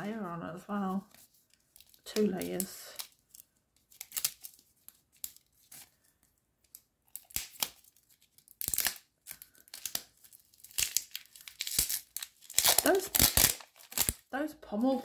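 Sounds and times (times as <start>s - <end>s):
plastic wrapper crinkling and tearing: 1.1s - 15.0s.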